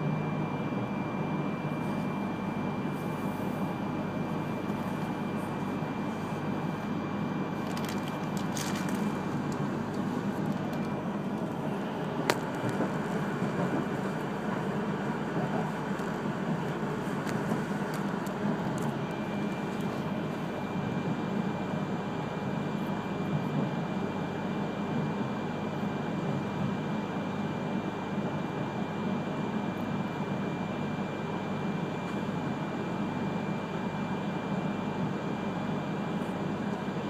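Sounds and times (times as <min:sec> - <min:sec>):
train rumbling on rails: 0:03.2 - 0:20.5.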